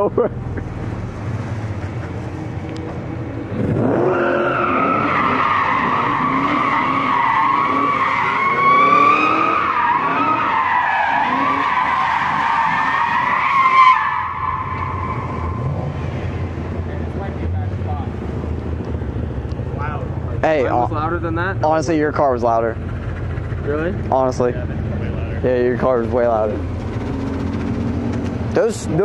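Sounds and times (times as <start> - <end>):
car engine revving: 0.0 - 29.0
tyres squealing: 3.8 - 15.8.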